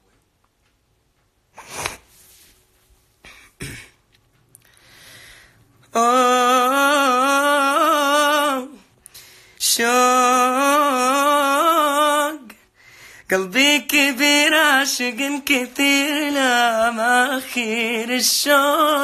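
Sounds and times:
throat clearing: 3.2 - 4.0
man singing: 5.9 - 8.9, 9.6 - 12.7, 13.3 - 19.0.

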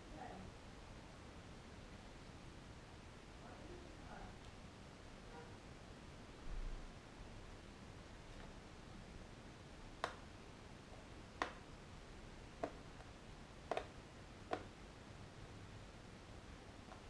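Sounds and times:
sharp plastic clicks: 12.6 - 14.7.

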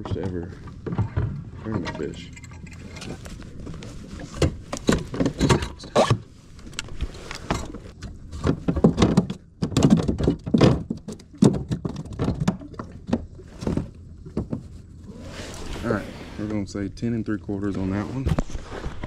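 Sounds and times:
knocks and thumps on plastic kayak: 0.0 - 1.8, 8.0 - 14.9.

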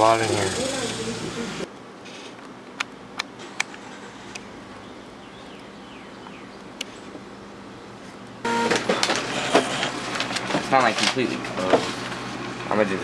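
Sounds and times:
loud pitched sound: 8.5 - 9.0.

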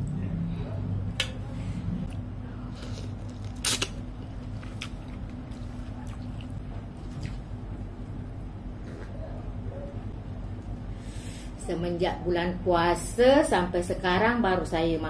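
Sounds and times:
steady low hum: 0.0 - 15.0
person chewing: 2.1 - 7.5, 8.7 - 9.4.

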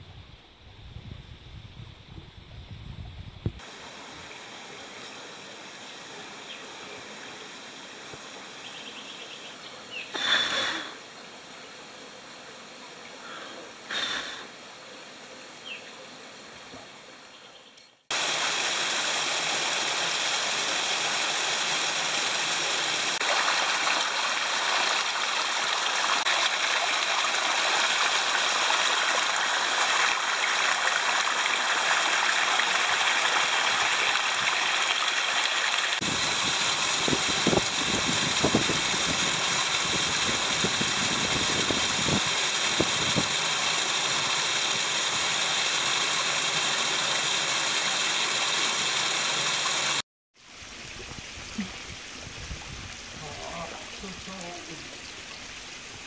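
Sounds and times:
waterfall roar: 18.1 - 50.0.

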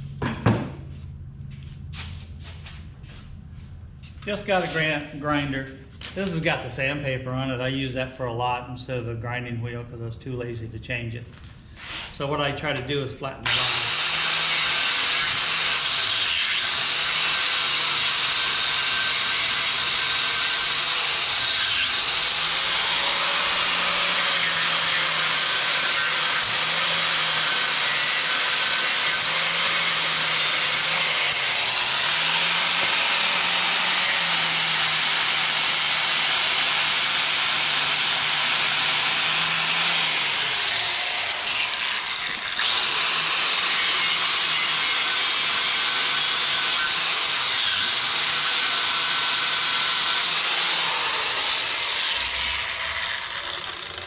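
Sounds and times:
angle grinder grinding steel: 13.4 - 54.0.

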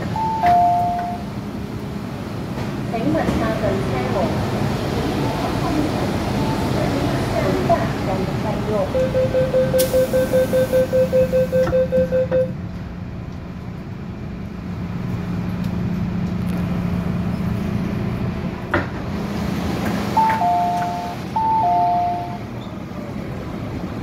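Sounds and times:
train door warning beeps: 0.0 - 1.3, 5.2 - 7.0, 8.8 - 12.6, 20.2 - 22.7
train carriage hum: 0.0 - 24.0.

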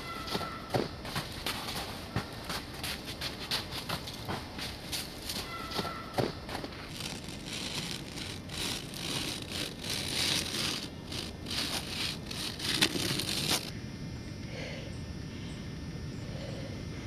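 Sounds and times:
footsteps crunching in snow: 0.3 - 13.7.

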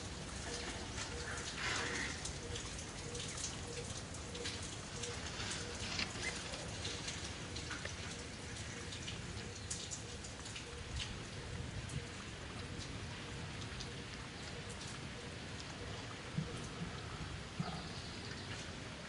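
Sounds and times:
steady forest hiss: 0.0 - 10.3.

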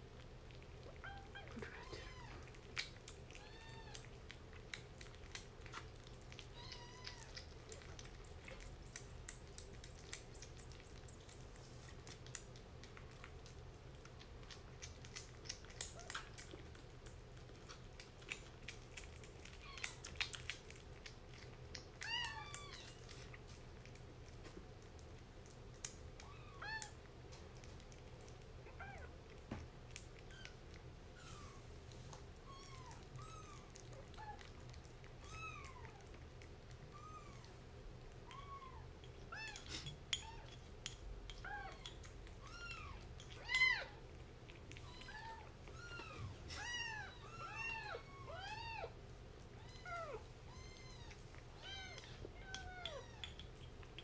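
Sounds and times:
kitten chewing and lapping: 0.0 - 54.0.

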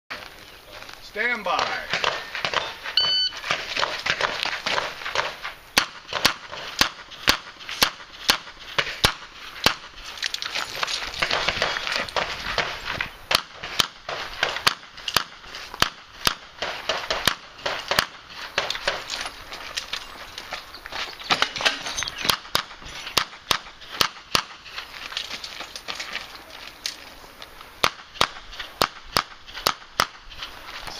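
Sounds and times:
pistol shots: 1.9 - 2.8
shot timer beep: 2.6 - 3.4.

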